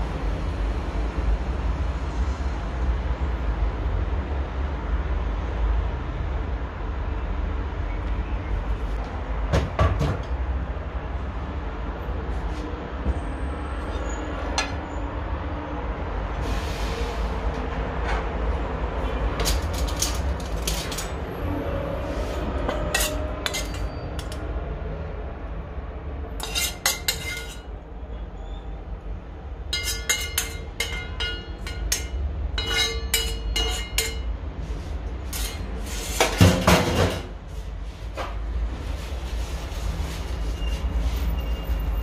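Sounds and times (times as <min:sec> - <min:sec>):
cutlery clatter: 0:19.4 - 0:21.2, 0:22.7 - 0:24.4, 0:26.4 - 0:27.7, 0:29.8 - 0:34.3
cutlery clinking on a plate: 0:22.7 - 0:24.4, 0:26.4 - 0:27.7, 0:29.7 - 0:34.3.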